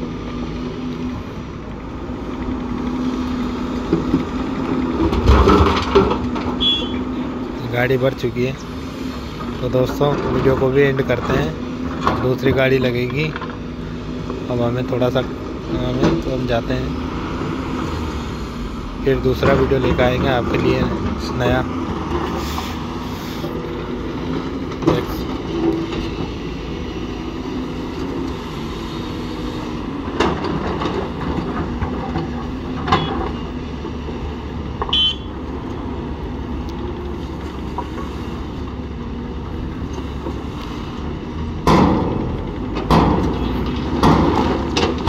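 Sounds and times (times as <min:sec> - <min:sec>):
heavy diesel engines running: 0:00.0 - 0:45.0
hydraulic excavator running: 0:00.0 - 0:45.0
sharp knocks and clanks: 0:03.8 - 0:07.0, 0:15.0 - 0:16.9, 0:30.1 - 0:33.4, 0:41.6 - 0:45.0.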